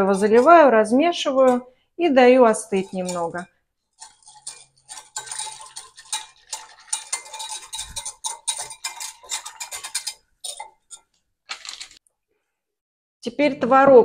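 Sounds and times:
whisk clicking against glass jug: 0:02.6 - 0:11.9.

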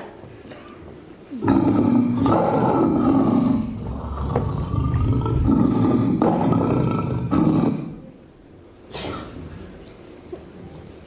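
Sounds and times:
tiger roars: 0:01.4 - 0:08.0.

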